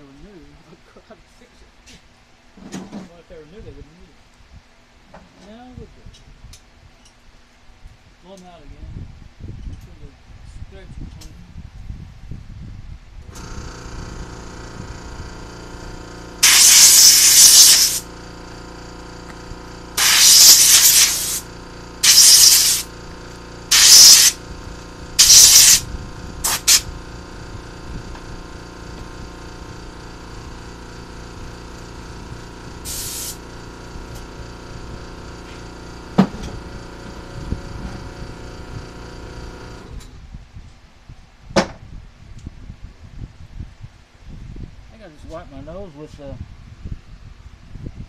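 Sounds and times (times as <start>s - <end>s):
spray nozzle hissing: 16.4s - 18.1s, 20.0s - 22.9s, 23.7s - 24.4s, 25.2s - 25.8s, 26.4s - 26.9s, 32.8s - 33.4s.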